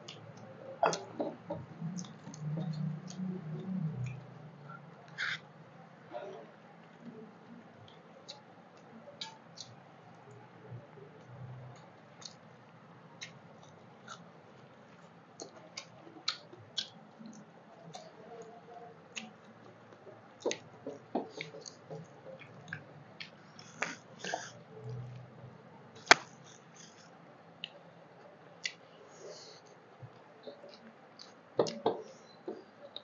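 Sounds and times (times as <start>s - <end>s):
chewing and wet mouth clicks: 0.1s - 4.3s, 7.8s - 10.4s, 11.2s - 12.4s, 13.2s - 14.3s, 15.4s - 18.5s.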